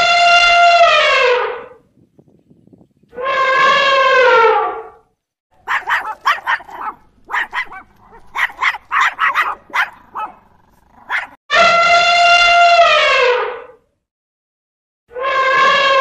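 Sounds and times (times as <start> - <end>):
small dog barking: 5.6 - 11.4
elephant trumpeting: 5.6 - 13.8.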